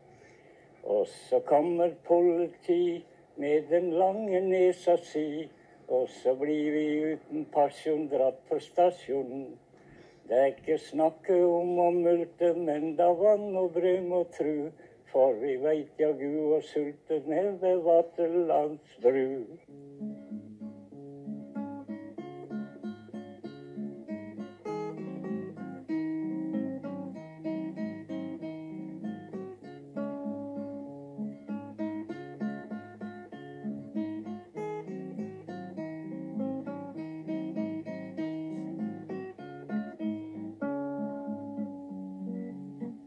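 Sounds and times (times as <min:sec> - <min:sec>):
acoustic guitar music: 0:00.0 - 0:43.0.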